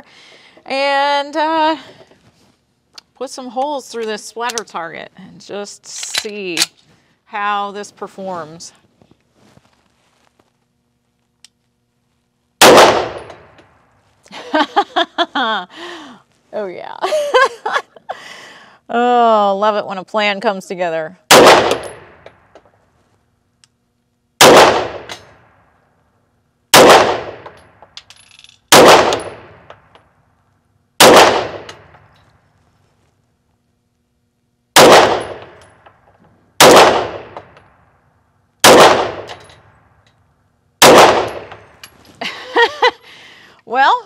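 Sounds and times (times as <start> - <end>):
pistol shots indoors: 12.6 - 13.5, 21.3 - 22.2, 24.4 - 25.6, 26.7 - 27.5, 28.7 - 29.6, 31.0 - 31.9, 34.8 - 35.6, 36.6 - 37.8, 38.6 - 39.4, 40.8 - 41.6.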